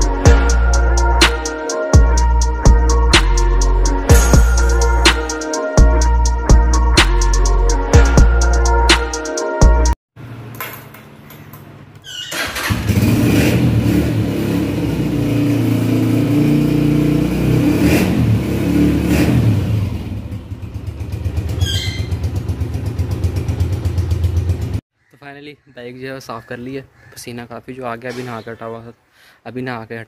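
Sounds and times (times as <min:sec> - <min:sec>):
motorcycle engine running: 0:12.6 - 0:24.8.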